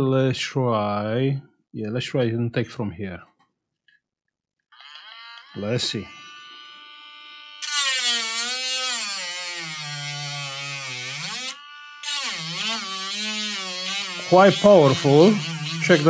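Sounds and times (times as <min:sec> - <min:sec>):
rotary tool grinding: 0:04.7 - 0:16.0.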